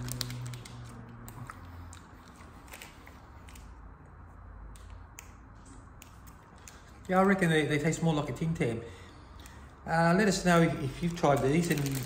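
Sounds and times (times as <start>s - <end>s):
chewing and crunching biscuit: 0.0s - 3.8s
sharp crackles: 11.0s - 12.0s.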